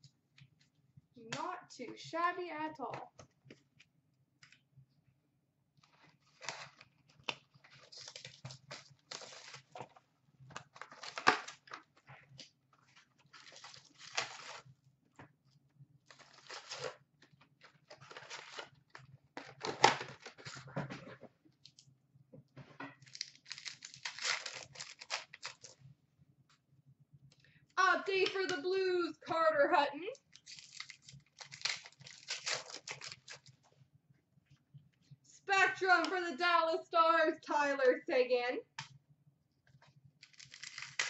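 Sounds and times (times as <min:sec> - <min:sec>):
cardboard tearing and crinkling: 0:05.9 - 0:09.9, 0:10.6 - 0:11.8, 0:13.3 - 0:14.7, 0:16.1 - 0:17.0, 0:17.7 - 0:18.8, 0:23.0 - 0:25.8, 0:30.3 - 0:33.5, 0:40.2 - 0:41.0.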